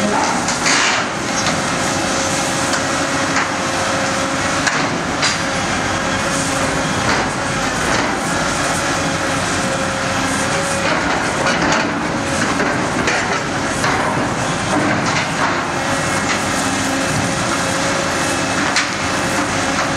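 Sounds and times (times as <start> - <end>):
metal clanks and scrapes: 0.0 - 1.6
excavator engine whining: 0.0 - 19.9.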